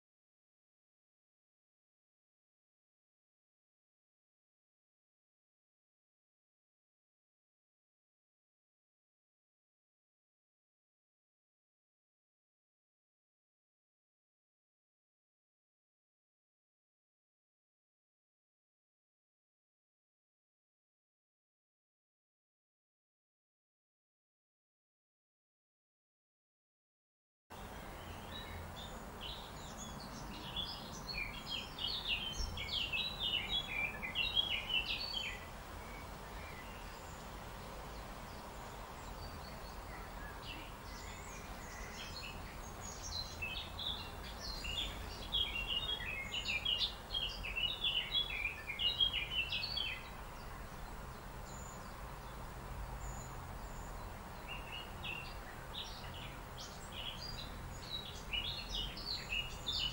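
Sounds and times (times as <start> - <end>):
low outdoor background noise: 27.5 - 59.9
songbird twittering chirps: 27.6 - 59.9.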